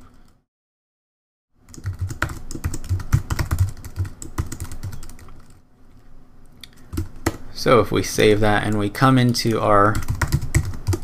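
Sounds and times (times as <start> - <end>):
typing on computer keyboard: 1.7 - 5.6, 6.9 - 7.4, 8.7 - 11.0.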